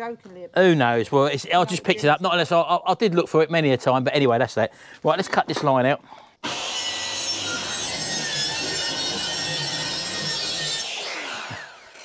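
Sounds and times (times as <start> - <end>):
circular saw cutting wood: 6.4 - 12.0
saw blade winding down: 6.4 - 12.0.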